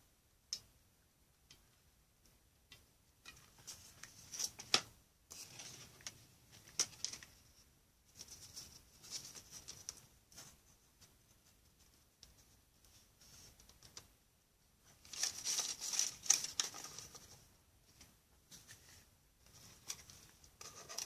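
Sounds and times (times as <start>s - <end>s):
cellophane crinkling: 15.0s - 17.4s.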